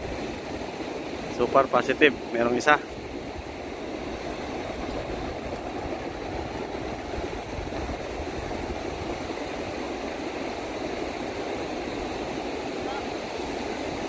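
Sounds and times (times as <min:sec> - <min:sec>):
wind rumble on microphone: 0:00.0 - 0:14.0.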